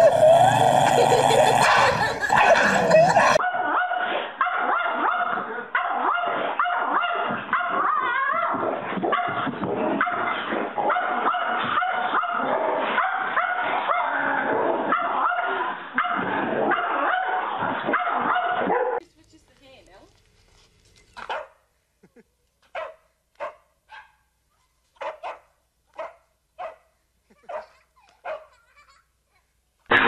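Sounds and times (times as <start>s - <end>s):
dogs yapping: 1.5s - 19.0s, 21.1s - 21.6s, 25.0s - 28.7s.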